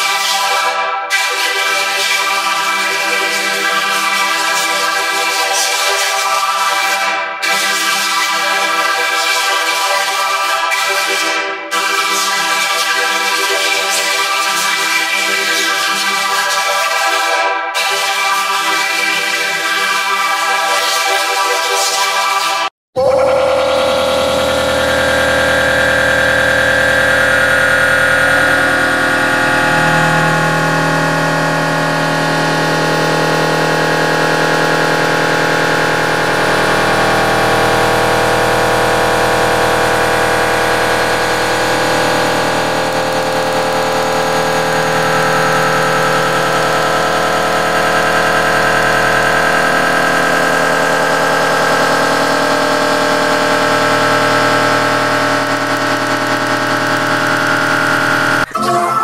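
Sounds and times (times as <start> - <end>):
layered electronic drone: 23.0 - 59.0.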